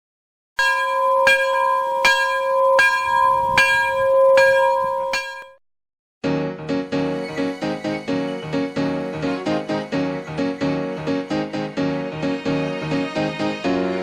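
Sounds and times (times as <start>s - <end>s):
bell struck repeatedly: 0.6s - 5.6s
steady ringing tone: 0.6s - 5.6s
piano music: 6.2s - 14.0s.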